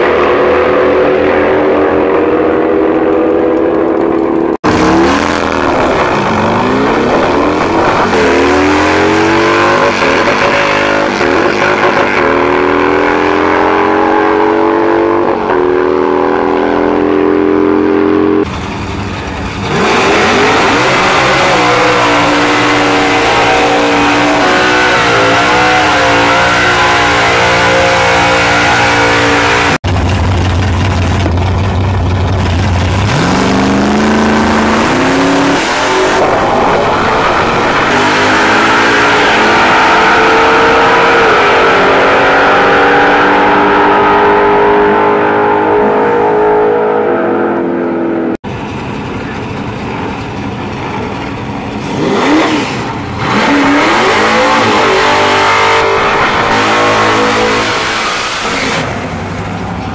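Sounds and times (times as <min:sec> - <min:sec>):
drag racing engines accelerating: 0:00.0 - 0:59.9.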